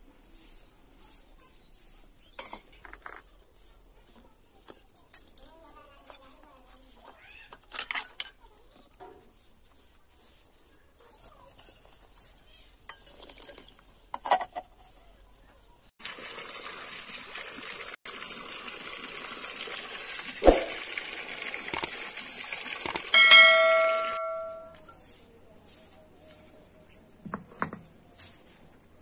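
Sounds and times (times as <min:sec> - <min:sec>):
outdoor ambience hiss: 0:12.0 - 0:29.0
sharp knock: 0:20.4 - 0:20.8
bell chime: 0:23.2 - 0:24.8.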